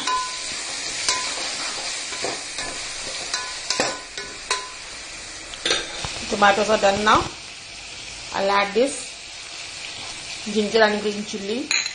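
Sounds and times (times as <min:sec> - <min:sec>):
steel spoon scraping and knocking pot: 0:00.0 - 0:04.8
vegetables sizzling in hot oil: 0:00.0 - 0:11.9.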